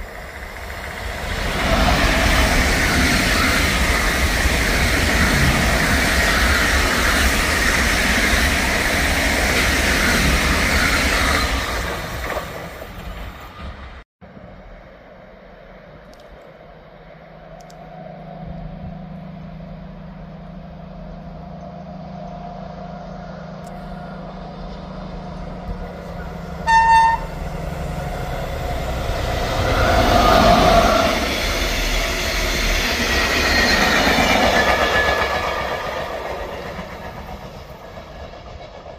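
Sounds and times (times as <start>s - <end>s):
diesel locomotive engine drone: 0.0s - 38.9s
train wheel noise: 0.0s - 38.9s
locomotive horn blast: 26.6s - 27.7s.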